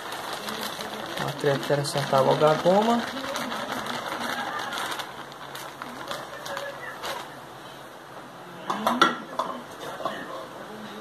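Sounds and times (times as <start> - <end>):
starch pouring into metal bowl: 0.0 - 7.4
plastic bag crinkling: 0.0 - 7.6.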